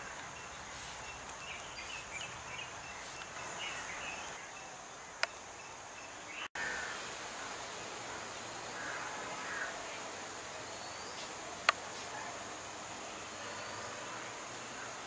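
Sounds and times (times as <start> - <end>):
bird chirps: 0.0 - 6.5
high insect drone: 0.0 - 15.0.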